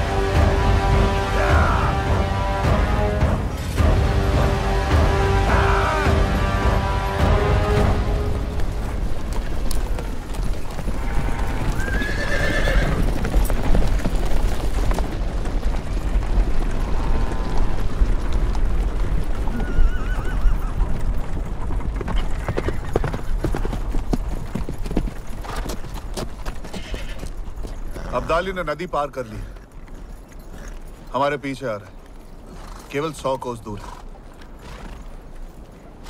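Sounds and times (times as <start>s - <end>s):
horse hooves clopping: 0.0s - 36.0s
horses whinnying: 9.6s - 13.8s, 19.4s - 21.1s, 22.1s - 23.7s, 26.6s - 28.5s.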